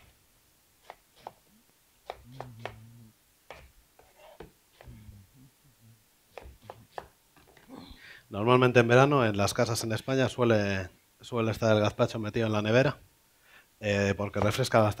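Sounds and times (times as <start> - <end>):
knife slicing onion on board: 0.8 - 1.4, 2.0 - 2.8, 3.5 - 5.0, 6.3 - 7.1.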